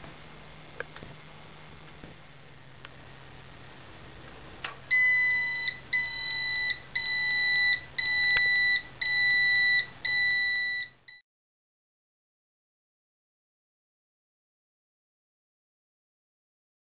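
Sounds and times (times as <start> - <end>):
high-pitched electronic alarm beeps: 4.9 - 11.2.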